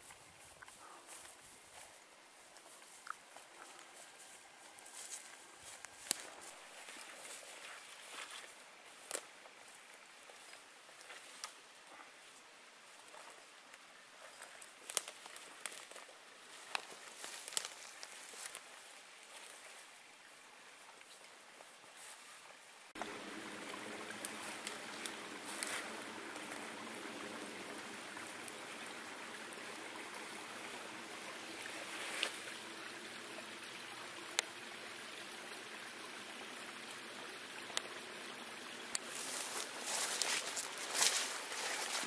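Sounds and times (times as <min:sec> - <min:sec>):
dry branches snapping: 0:05.0 - 0:06.4, 0:14.6 - 0:18.7, 0:39.0 - 0:42.0
steady rushing outdoor noise: 0:23.0 - 0:32.0.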